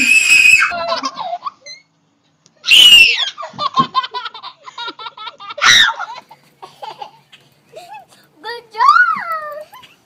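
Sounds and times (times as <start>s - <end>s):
child laughing and squealing: 0.0s - 1.9s, 2.6s - 3.7s, 5.5s - 6.3s.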